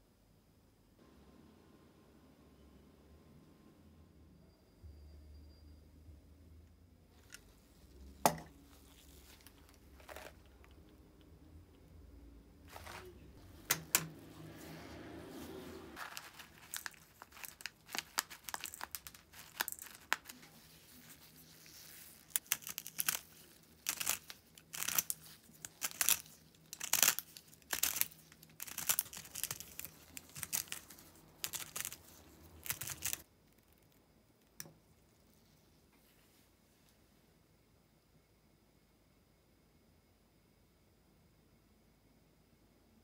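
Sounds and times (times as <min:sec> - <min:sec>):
pepper grinder crunching peppercorns: 0:08.2 - 0:10.9, 0:16.0 - 0:33.2.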